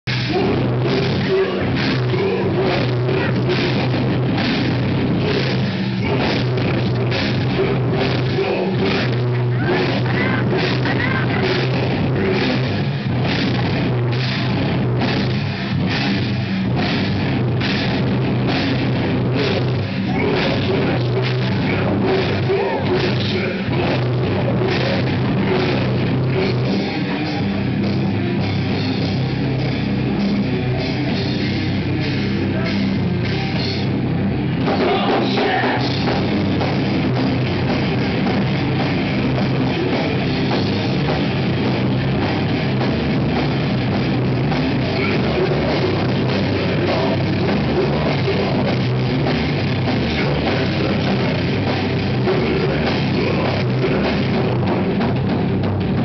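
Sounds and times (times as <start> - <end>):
bass guitar: 0.0 - 56.0
drum kit: 0.0 - 56.0
electric guitars: 0.0 - 56.0
vocalist singing into microphone: 52.2 - 54.7.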